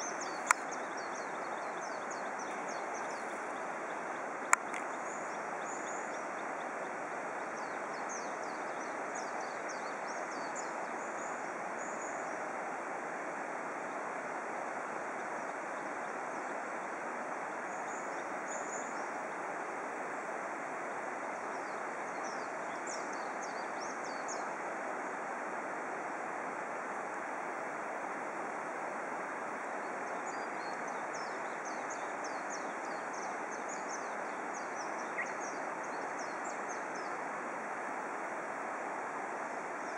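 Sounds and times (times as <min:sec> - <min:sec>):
steady outdoor hiss: 0:00.0 - 0:39.9.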